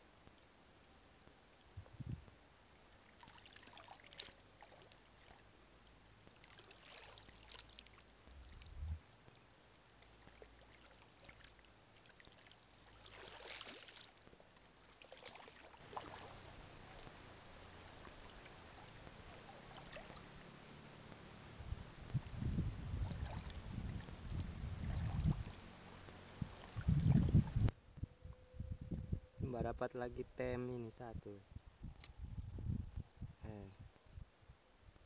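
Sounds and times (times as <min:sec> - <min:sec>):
short water splashes: 0:03.0 - 0:05.5, 0:06.2 - 0:09.4, 0:10.0 - 0:20.6, 0:22.1 - 0:27.7
seawater sloshing from wading: 0:06.3 - 0:09.4, 0:10.0 - 0:21.4, 0:22.1 - 0:27.7.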